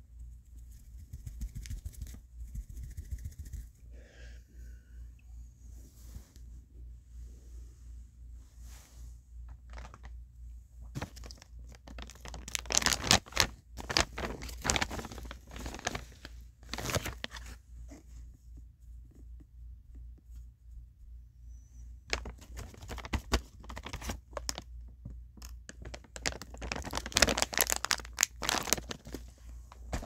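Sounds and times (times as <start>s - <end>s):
crinkly material rustling: 8.4s - 18.1s, 22.1s - 24.7s, 25.4s - 30.0s.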